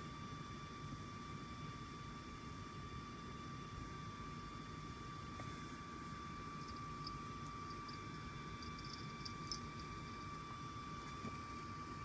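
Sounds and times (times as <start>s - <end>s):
thin constant hum: 0.0s - 12.0s.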